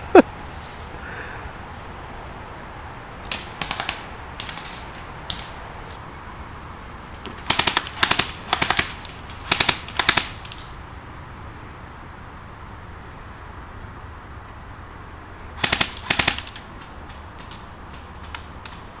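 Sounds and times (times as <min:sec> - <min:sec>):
full-auto bursts of clicks: 0:03.2 - 0:06.0, 0:07.4 - 0:10.8, 0:15.6 - 0:19.0
airsoft rifle shots: 0:03.3 - 0:05.6, 0:07.4 - 0:10.7, 0:15.6 - 0:18.9.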